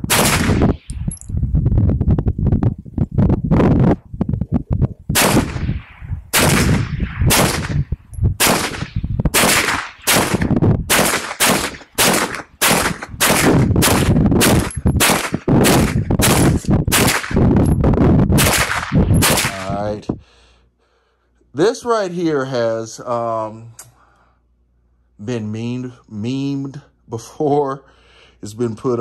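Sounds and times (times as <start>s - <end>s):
gunshots with echo: 0.0s - 0.9s, 5.2s - 17.4s, 18.4s - 19.8s.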